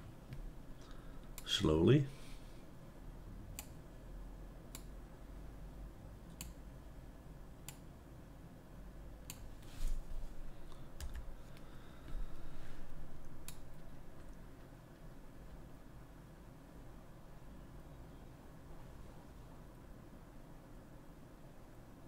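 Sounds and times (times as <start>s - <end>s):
keyboard and mouse clicking: 3.5s - 3.8s, 11.0s - 11.3s.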